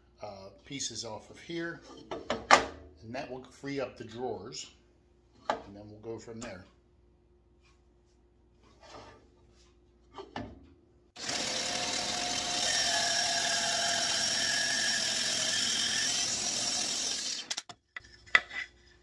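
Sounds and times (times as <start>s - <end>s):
bandsaw cutting wood: 11.2s - 17.7s.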